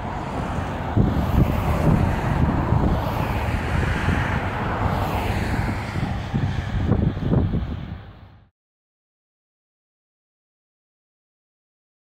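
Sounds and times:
road traffic passing: 0.0s - 8.5s
vehicle passing by: 0.0s - 8.5s
wind rumbling on microphone: 0.0s - 8.5s.

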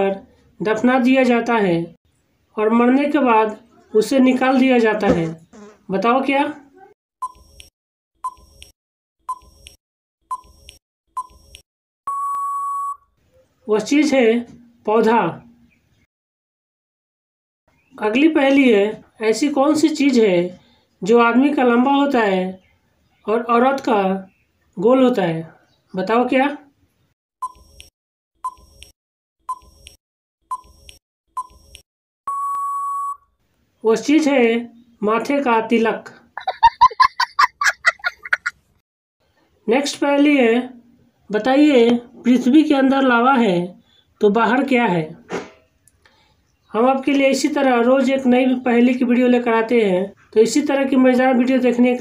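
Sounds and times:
short timer beeps: 32.3s - 33.2s.

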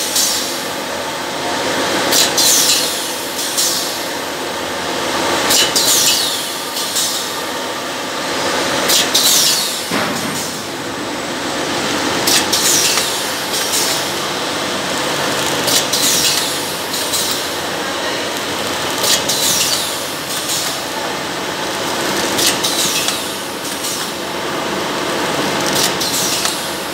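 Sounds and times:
packing machine clatter: 11.9s - 21.0s, 21.6s - 24.2s, 25.0s - 26.9s.

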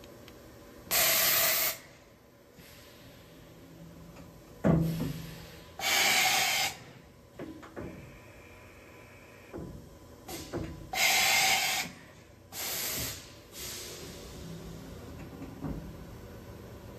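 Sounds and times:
bursts of air hissing: 0.9s - 2.0s, 4.8s - 7.0s, 10.3s - 14.6s.

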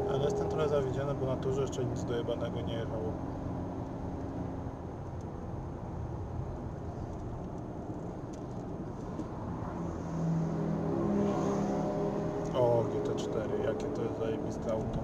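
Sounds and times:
car engine hum: 0.0s - 15.0s.

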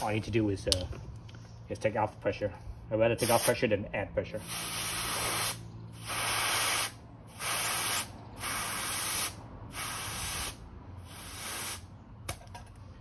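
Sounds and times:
air hissing from tyre valve: 4.4s - 12.0s.

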